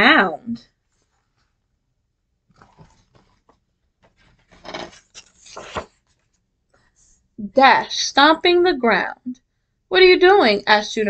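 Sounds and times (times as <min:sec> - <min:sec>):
paper pages rustling: 0:02.5 - 0:06.4.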